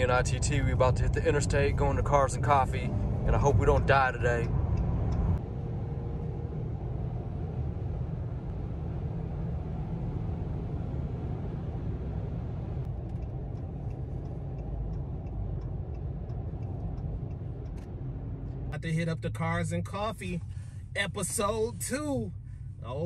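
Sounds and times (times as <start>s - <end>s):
tyre and engine rumble: 0.0s - 23.0s
faint ticks: 12.8s - 18.0s.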